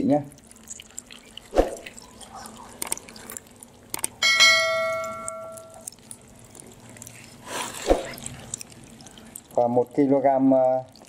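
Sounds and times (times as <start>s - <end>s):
bright bell-like ding: 4.2s - 5.7s.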